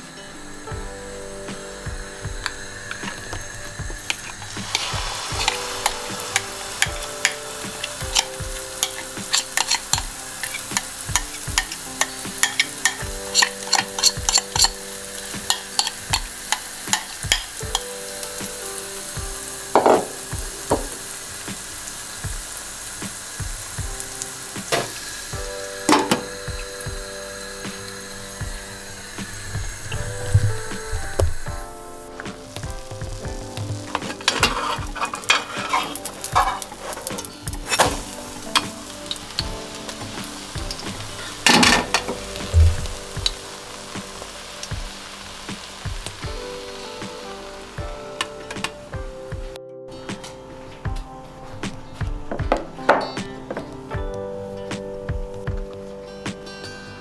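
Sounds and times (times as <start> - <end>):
batter sizzling in hot oil: 0.2 - 48.9
metal clanking on cookware: 2.4 - 17.9, 19.7 - 21.1, 25.8 - 26.4, 33.6 - 43.4
spoon scraping glass bowl: 8.1 - 10.6, 12.4 - 14.8.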